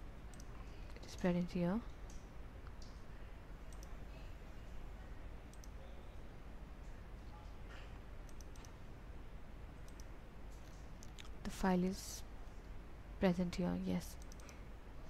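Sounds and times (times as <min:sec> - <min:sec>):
low steady hum: 0:00.0 - 0:15.0
computer mouse clicking: 0:00.3 - 0:01.3, 0:03.7 - 0:04.0, 0:05.5 - 0:05.8, 0:08.2 - 0:08.8, 0:09.8 - 0:11.3, 0:14.1 - 0:14.6.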